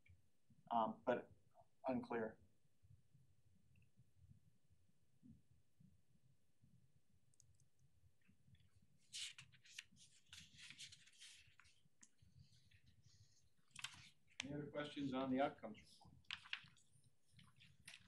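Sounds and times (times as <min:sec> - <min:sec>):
faint rustling and clicking: 0:06.6 - 0:15.0, 0:15.6 - 0:18.0.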